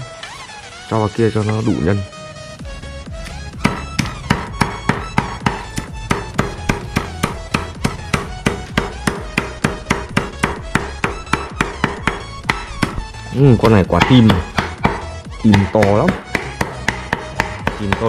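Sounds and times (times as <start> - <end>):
background music: 0.0 - 18.0
cleaver chopping on board: 3.6 - 13.0, 13.9 - 18.0.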